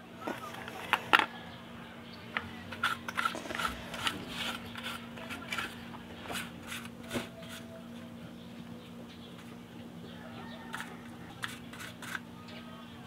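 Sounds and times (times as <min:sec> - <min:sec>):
steady low hum: 0:00.0 - 0:13.0
brush scraping pump: 0:02.4 - 0:07.8, 0:10.6 - 0:12.3.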